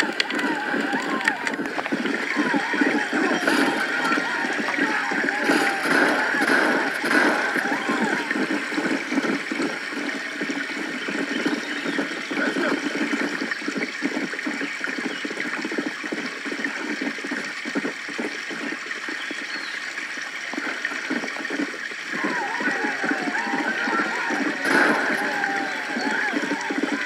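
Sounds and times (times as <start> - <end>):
running water gurgling: 0.0 - 27.0.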